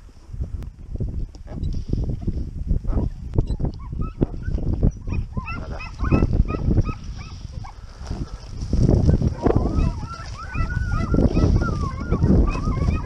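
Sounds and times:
hounds yelping: 2.9 - 13.0.

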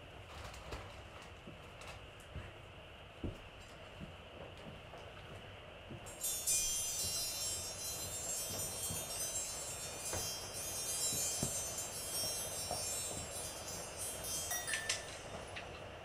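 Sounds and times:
chimes shimmering: 6.1 - 15.9.

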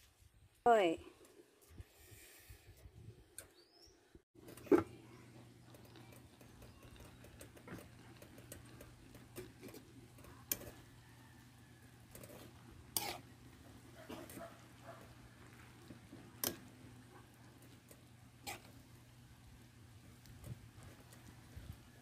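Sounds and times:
spoon stirring leaves in pot: 4.4 - 22.0.

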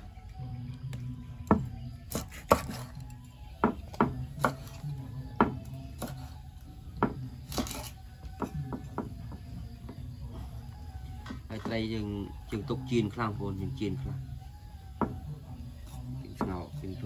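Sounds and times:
knife chopping on cutting board: 2.1 - 2.9, 3.6 - 4.8.

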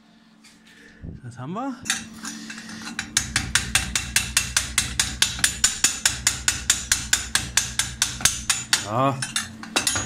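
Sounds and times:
chipping hammer tapping metal: 3.0 - 10.0.

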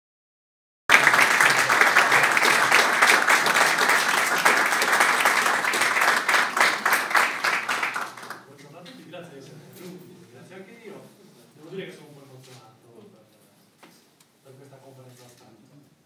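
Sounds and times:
audience applauding: 0.9 - 8.4.

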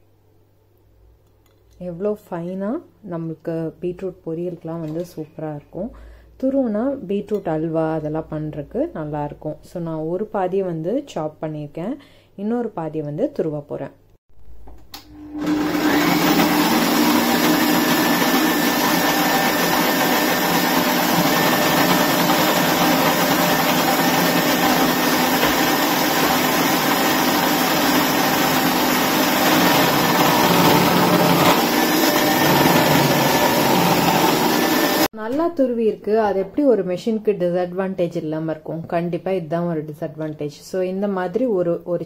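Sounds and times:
click: 14.7 - 15.1
food processor motor humming: 15.0 - 35.1.

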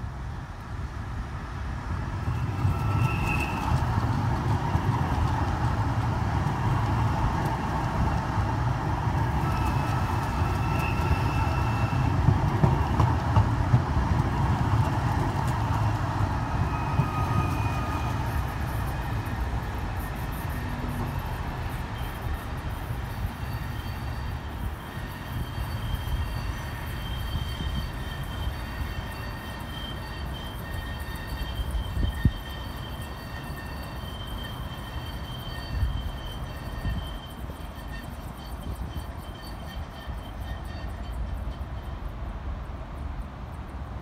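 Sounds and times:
tram wheels rumbling on rail: 0.0 - 44.0.

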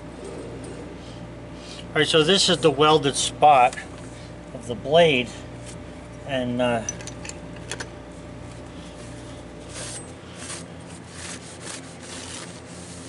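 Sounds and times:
rag scrubbing a steel blade: 9.6 - 13.0.

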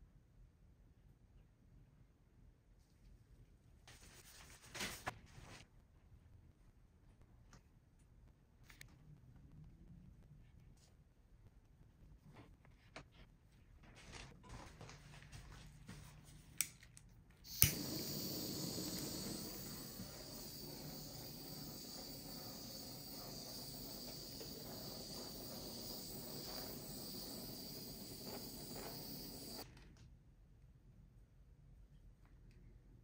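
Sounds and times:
gas torch clicking on: 17.5 - 29.6
gas torch flame hissing: 17.5 - 29.6.

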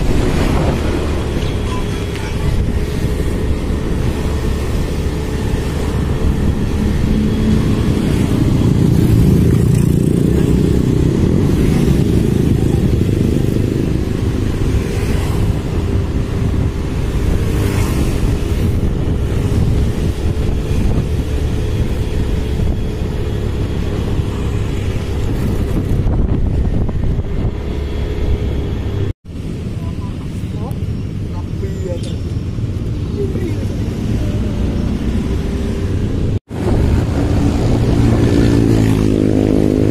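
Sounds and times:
road and wind rumble: 0.0 - 39.9
motorcycle engine running: 1.4 - 15.0.

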